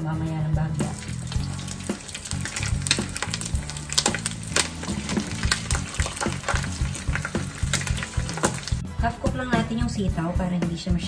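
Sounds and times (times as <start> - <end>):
pork frying in oil: 0.6 - 8.9.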